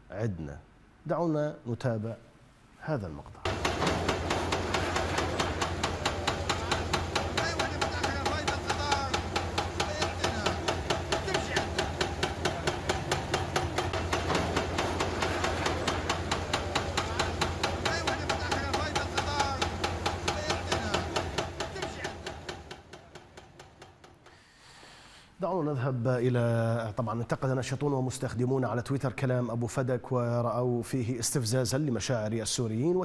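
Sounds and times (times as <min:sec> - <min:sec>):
rapid even tapping: 0:03.4 - 0:24.4
men talking: 0:05.3 - 0:13.5, 0:15.6 - 0:22.4.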